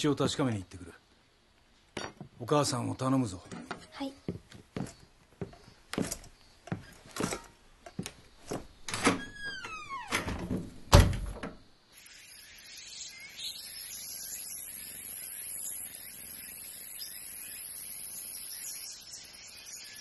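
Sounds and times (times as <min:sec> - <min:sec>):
soft outdoor hiss: 0:00.0 - 0:20.0
footsteps and gear clattering: 0:03.5 - 0:08.8
door creaking open: 0:08.8 - 0:11.7
door thudding shut: 0:08.9 - 0:11.6
faint high chirps: 0:11.9 - 0:20.0.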